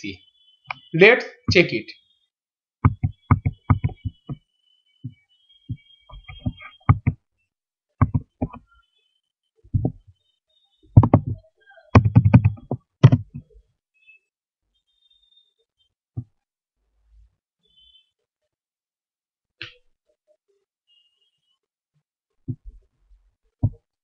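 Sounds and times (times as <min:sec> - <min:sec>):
keyboard and mouse clicks: 0:02.8 - 0:04.4, 0:06.1 - 0:07.2, 0:08.0 - 0:08.7, 0:11.0 - 0:13.5.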